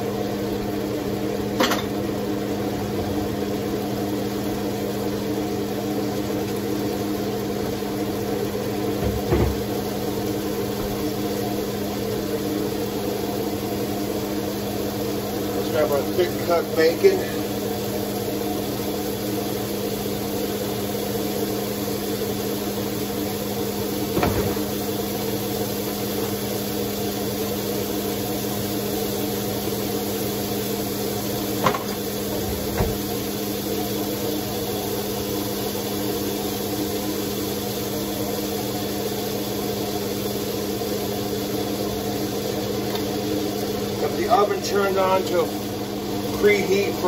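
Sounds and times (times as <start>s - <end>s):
bacon sizzling: 0.0s - 47.0s.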